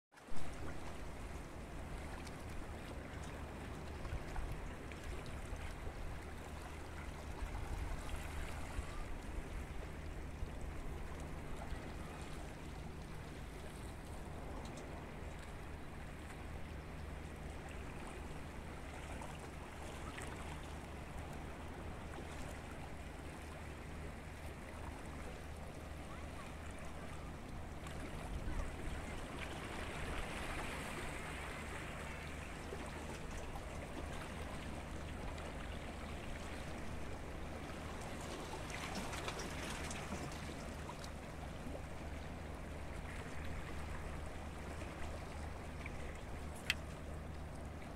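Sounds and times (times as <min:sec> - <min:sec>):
waves lapping against rocks: 0:17.2 - 0:47.9.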